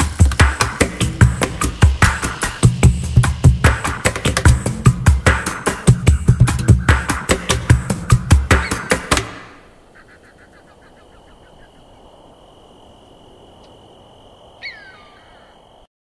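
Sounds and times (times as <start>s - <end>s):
chirping notes: 0.0s - 12.2s, 14.6s - 15.7s
falling call: 8.1s - 12.0s, 14.6s - 15.6s.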